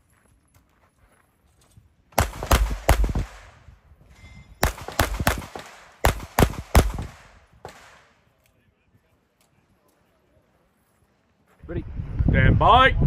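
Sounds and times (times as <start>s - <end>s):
pistol shots with echo: 2.2s - 3.6s, 4.6s - 8.2s.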